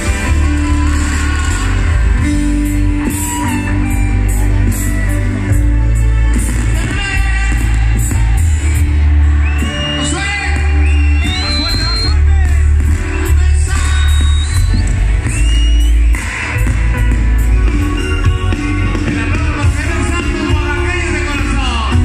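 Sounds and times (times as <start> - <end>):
live band through pa: 0.0 - 22.0
man singing: 18.0 - 22.0.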